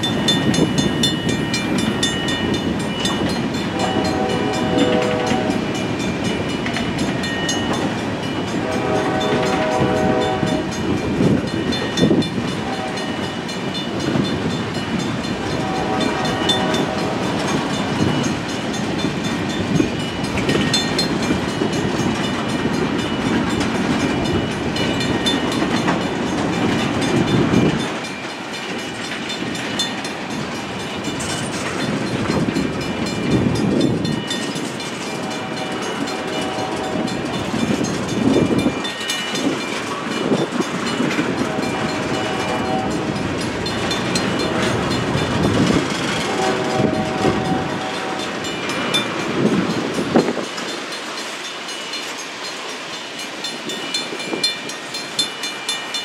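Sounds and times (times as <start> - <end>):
train wheels rumbling and clacking: 0.0 - 56.0
distant locomotive horn: 3.7 - 5.8, 8.6 - 10.9, 12.6 - 13.4, 15.4 - 17.6, 35.2 - 37.4, 41.3 - 43.3, 46.2 - 48.9.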